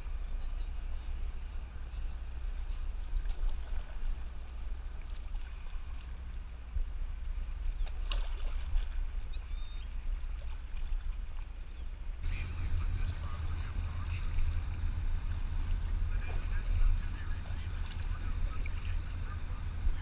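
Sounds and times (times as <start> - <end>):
steady low rumble: 0.0 - 20.0
paddle splashing in water: 2.4 - 6.8, 7.4 - 20.0.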